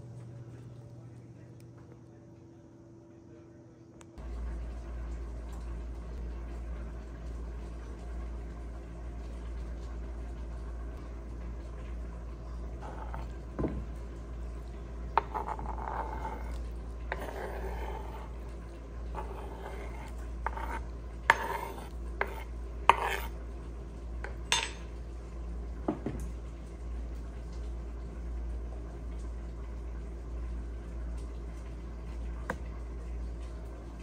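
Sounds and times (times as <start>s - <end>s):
steady low hum: 0.0s - 34.0s
spoon scraping cutting board: 15.2s - 18.3s, 19.1s - 23.4s
spoon clinking on ceramic dish: 24.5s - 24.9s.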